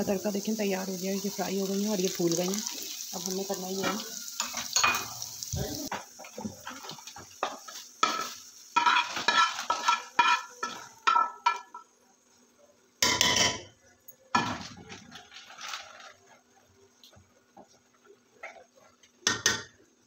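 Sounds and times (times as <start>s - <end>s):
hot oil sizzling: 0.0s - 20.0s
metal spoon scraping frying pan: 6.7s - 11.7s.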